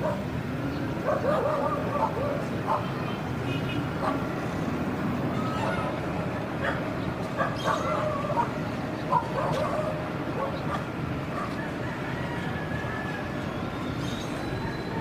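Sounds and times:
yelping animal calls: 5.3s - 6.0s.

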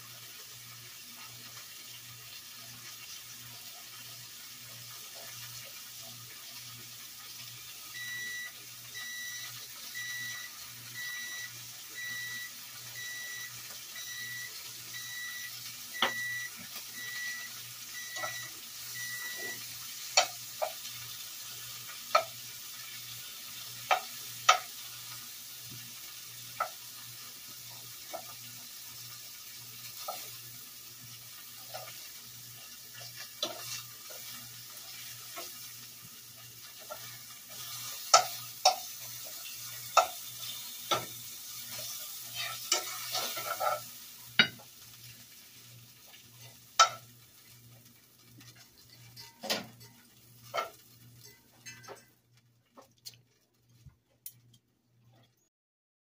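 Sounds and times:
meat sizzling in a skillet: 0.0s - 52.1s
electronic alarm beeping: 8.0s - 19.6s
metal tongs clinking on pan: 19.3s - 20.8s, 33.0s - 34.4s, 36.7s - 44.6s, 46.4s - 47.1s, 48.4s - 52.2s.

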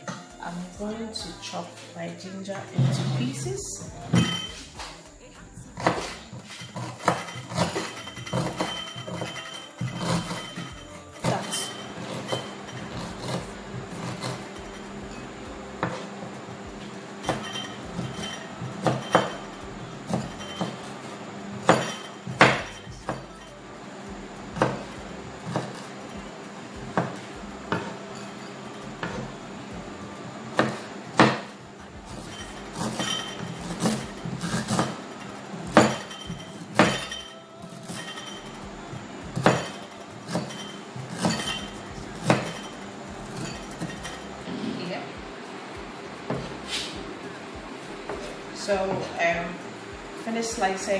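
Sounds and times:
knife chopping on wooden board: 5.8s - 9.2s, 21.6s - 23.2s, 24.6s - 25.9s, 27.0s - 28.0s, 30.6s - 31.5s, 32.1s - 35.0s, 39.4s - 41.6s.

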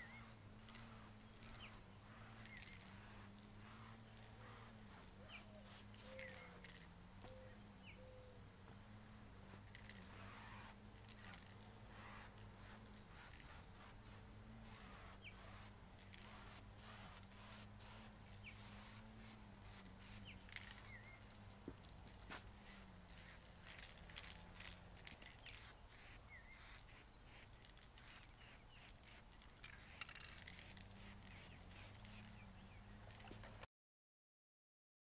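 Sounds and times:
spray paint can hissing: 0.0s - 6.9s, 9.6s - 21.4s, 22.4s - 32.4s.

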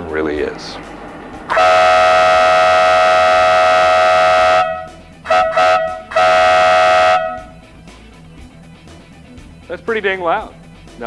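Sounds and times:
two-tone air horn blasts: 1.5s - 7.6s.

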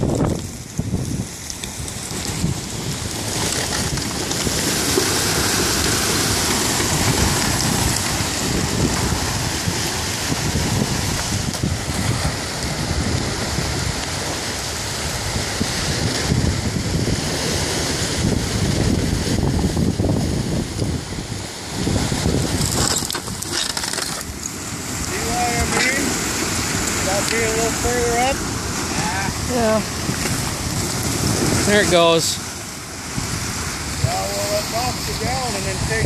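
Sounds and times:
wind buffeting microphone: 0.0s - 36.0s
ice floes grinding and scraping: 22.4s - 24.4s.

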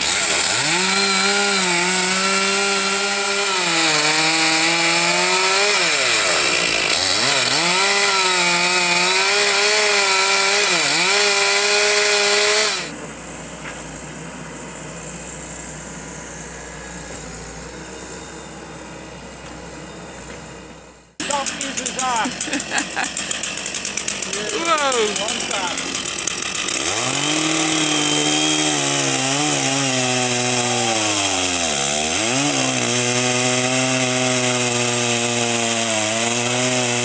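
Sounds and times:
chainsaw cutting wood: 0.0s - 13.0s, 21.2s - 37.0s.

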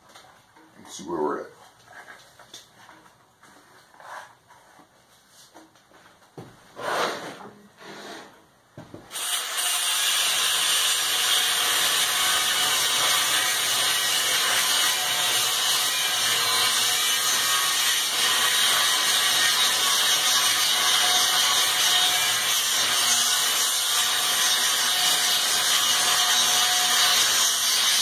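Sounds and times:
angle grinder grinding steel: 9.1s - 28.0s.

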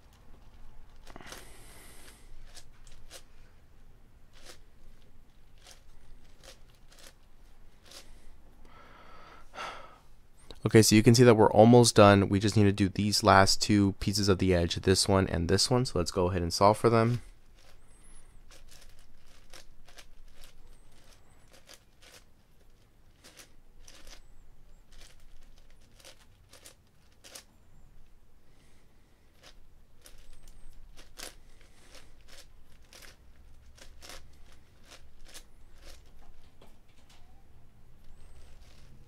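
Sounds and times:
puzzle cube clicking and clacking: 0.0s - 3.3s, 4.3s - 8.1s, 18.4s - 24.2s, 24.9s - 27.5s, 29.4s - 37.3s, 38.0s - 39.0s.

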